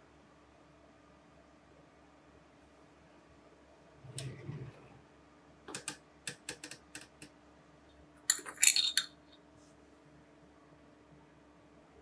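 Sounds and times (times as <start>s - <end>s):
glass jars clicking: 8.3s - 9.2s
metal spoon knocking glass jar: 8.3s - 9.2s.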